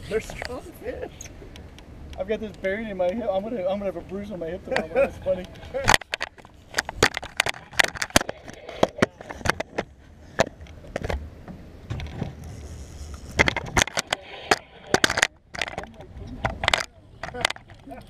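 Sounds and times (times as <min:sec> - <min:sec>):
camera handling noise: 0:05.4 - 0:11.2.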